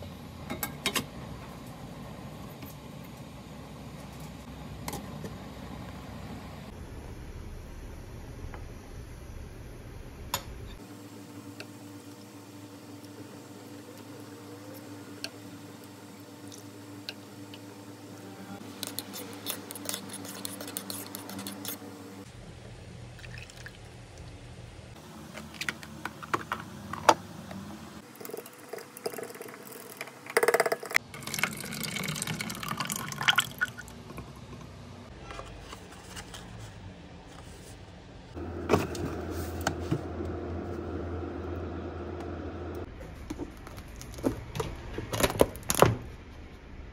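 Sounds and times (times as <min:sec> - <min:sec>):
liquid being stirred: 0:18.8 - 0:21.8
liquid being poured: 0:23.2 - 0:23.9, 0:28.1 - 0:34.0.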